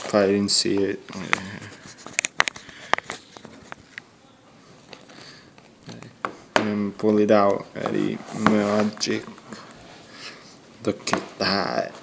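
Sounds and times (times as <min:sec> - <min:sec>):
paper rustling: 0:01.1 - 0:04.0, 0:07.8 - 0:09.8.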